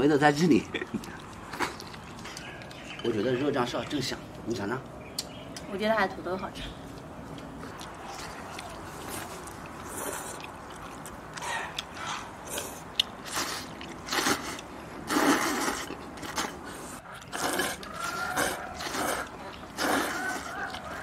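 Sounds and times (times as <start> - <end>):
people slurping noodles: 7.7 - 11.7, 12.4 - 21.0.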